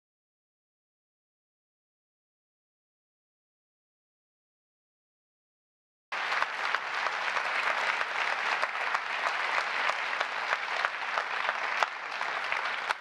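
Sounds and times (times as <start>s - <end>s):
audience applauding: 6.1s - 13.0s.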